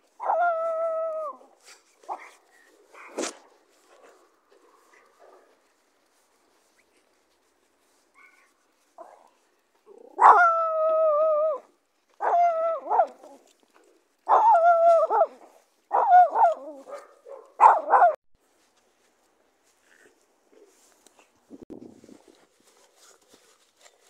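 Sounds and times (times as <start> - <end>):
small dog yelping barks: 0.2 - 1.5, 8.2 - 9.3, 10.0 - 13.4, 14.3 - 18.2.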